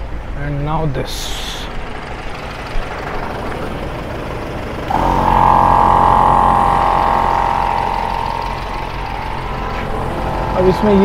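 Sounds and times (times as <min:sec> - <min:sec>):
air compressor whining: 0:04.9 - 0:11.0
mechanical running noise: 0:04.9 - 0:11.0.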